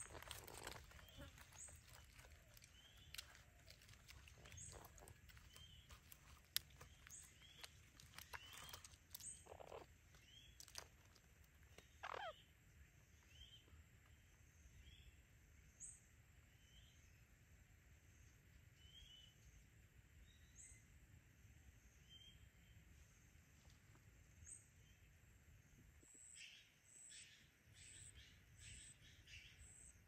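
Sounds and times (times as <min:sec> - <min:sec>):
light clicks and rustles: 0:00.0 - 0:11.8
animal high chirps: 0:00.0 - 0:12.4.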